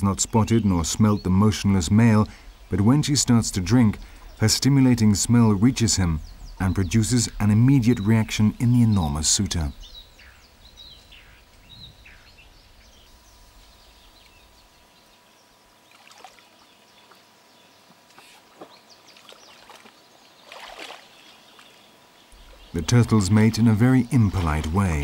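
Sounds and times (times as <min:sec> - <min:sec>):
short splashes: 0:15.9 - 0:16.6, 0:18.1 - 0:21.8
water sloshing: 0:15.9 - 0:17.2, 0:18.1 - 0:25.0.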